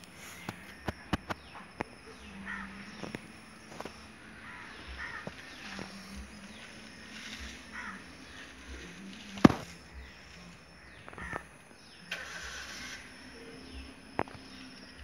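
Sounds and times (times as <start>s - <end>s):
faint steady hum: 0.0s - 15.0s
high falling chirps: 0.0s - 15.0s.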